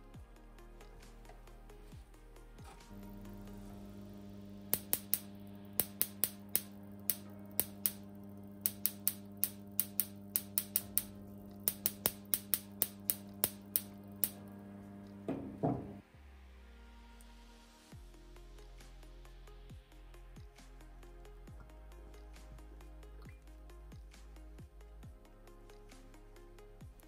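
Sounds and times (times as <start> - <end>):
spark clicks: 2.9 - 15.2
loud spark clatter: 4.6 - 14.4.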